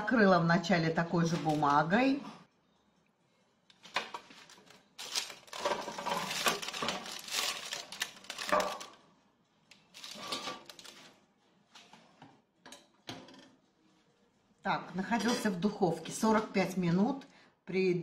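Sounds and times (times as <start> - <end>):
baking parchment rustling: 1.2 - 2.0, 3.8 - 12.2.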